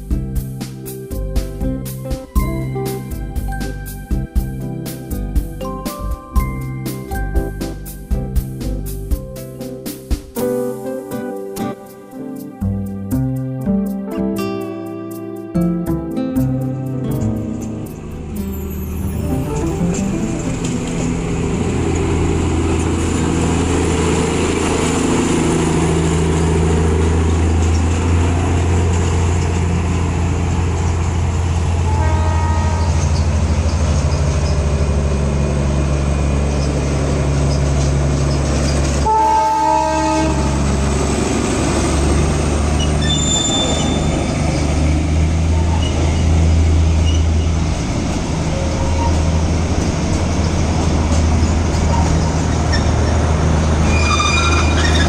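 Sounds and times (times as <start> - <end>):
diesel locomotive engine droning: 16.4 - 55.0
locomotive horn blast: 31.4 - 33.6, 39.0 - 41.3, 43.0 - 44.4.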